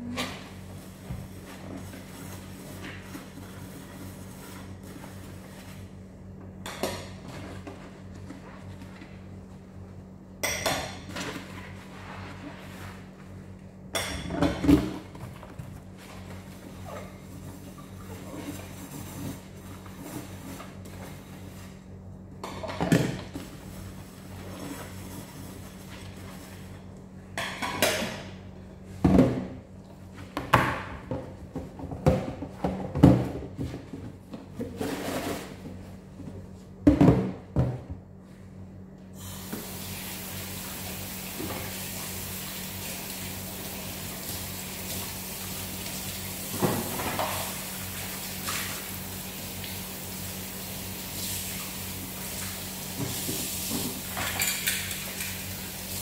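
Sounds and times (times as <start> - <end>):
dishes clattering in a metal sink: 10.4 - 11.6, 13.9 - 15.3, 22.4 - 23.5, 27.4 - 28.4, 46.5 - 48.9, 52.9 - 56.0.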